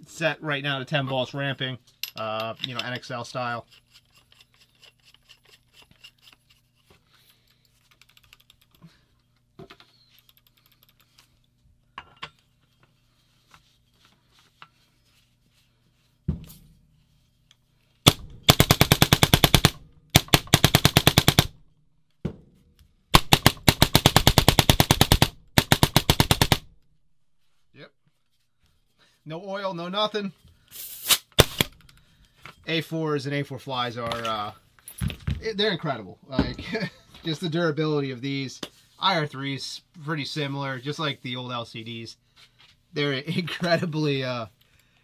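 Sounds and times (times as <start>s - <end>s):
thump: 16.3s - 16.8s
paintball marker rapid shots: 18.1s - 21.6s, 23.1s - 26.7s, 31.1s - 31.8s.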